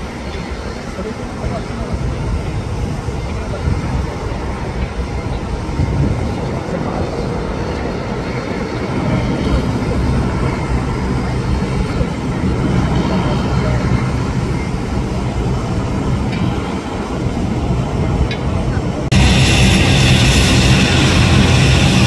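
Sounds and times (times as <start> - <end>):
jet engines rumbling: 0.0 - 22.0.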